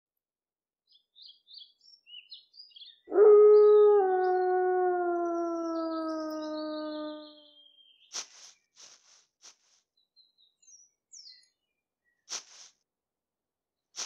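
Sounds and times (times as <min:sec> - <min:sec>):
birds chirping faintly: 0:00.9 - 0:12.3
wolf howling: 0:03.1 - 0:07.5.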